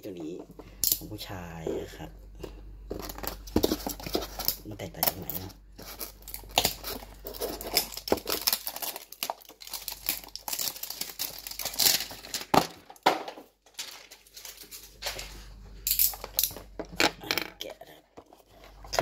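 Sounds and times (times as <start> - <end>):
packaging crinkling and tearing: 3.0 - 13.0, 13.6 - 15.3.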